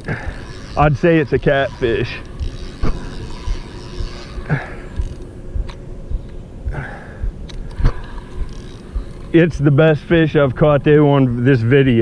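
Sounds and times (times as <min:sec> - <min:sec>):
fishing reel cranking: 0:00.0 - 0:05.3, 0:07.7 - 0:09.8.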